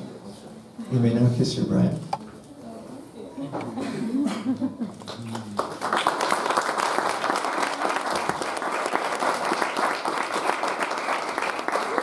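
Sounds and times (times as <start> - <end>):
crowd applauding and cheering: 5.0 - 12.0.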